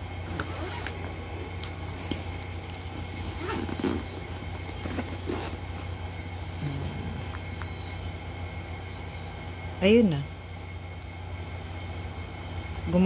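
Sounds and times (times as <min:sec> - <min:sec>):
steady low hum: 0:00.0 - 0:13.0
bag being handled: 0:00.2 - 0:01.1, 0:02.8 - 0:06.4
zipper scraping closed: 0:00.3 - 0:01.0, 0:03.2 - 0:05.7.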